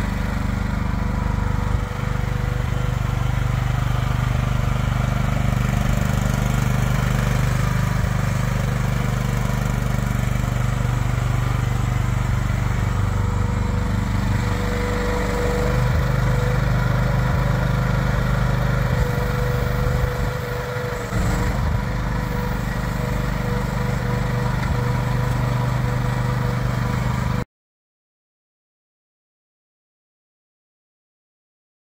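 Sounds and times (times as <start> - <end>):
small excavator engine running: 0.0 - 27.4
thin hydraulic whine: 18.9 - 26.0.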